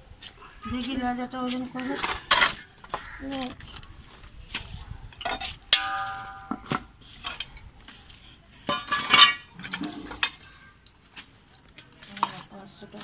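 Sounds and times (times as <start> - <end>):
metal scale pans and weights clanking: 8.7 - 10.5.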